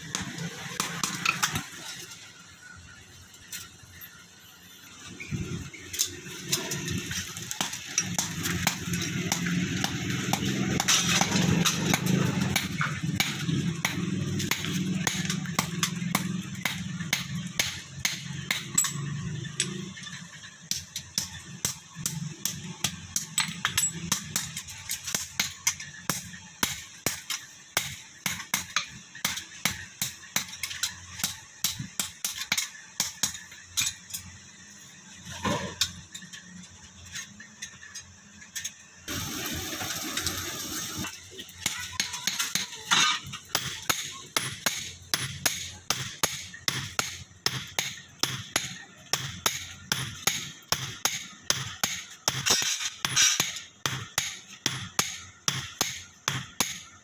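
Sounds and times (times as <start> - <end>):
hammer striking steel on anvil: 7.6 - 19.8, 20.7 - 34.2, 41.6 - 56.9
steady hiss: 26.6 - 55.6.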